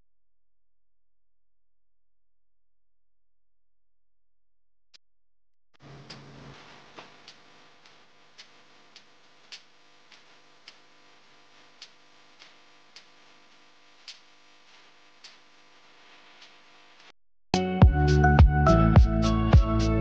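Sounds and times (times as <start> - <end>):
low steady hiss: 5.8 - 17.1
faint regular ticking: 7.2 - 11.0, 11.7 - 13.2.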